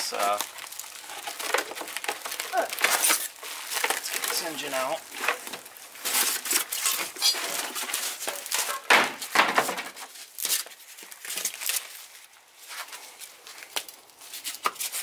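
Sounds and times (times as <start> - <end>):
plastic and cardboard crinkling: 0.0 - 15.0.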